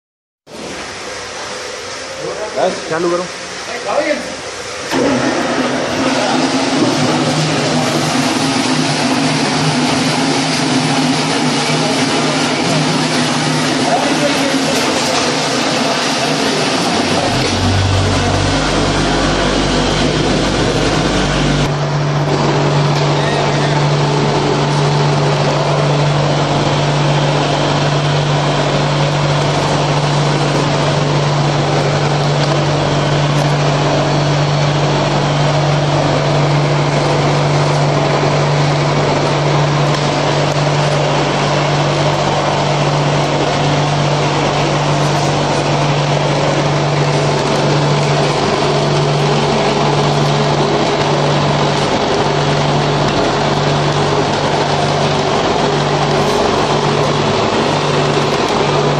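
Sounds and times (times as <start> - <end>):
vibrating table humming: 16.2 - 23.2.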